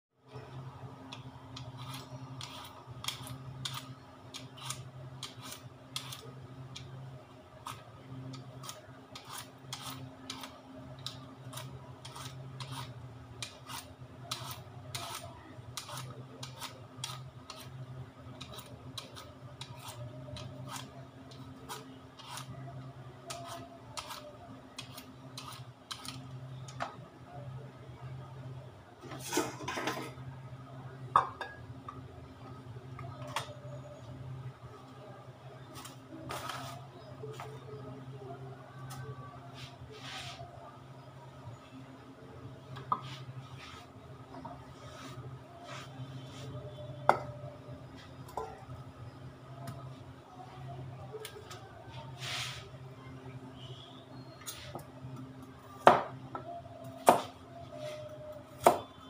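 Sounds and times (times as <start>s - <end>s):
peeler scraping potato skin: 1.1s - 6.9s, 7.6s - 26.3s.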